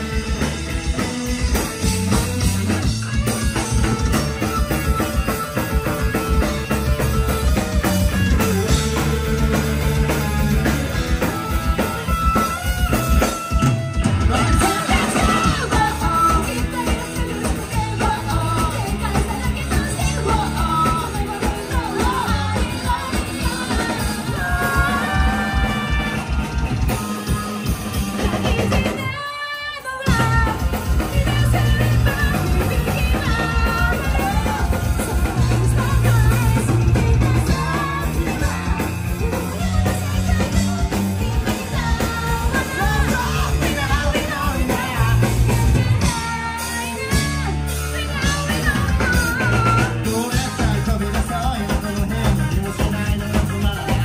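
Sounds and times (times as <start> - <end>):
crowd noise: 0.0 - 54.0
drums: 0.0 - 54.0
electric guitars: 0.0 - 54.0
shouted singing: 14.3 - 50.9.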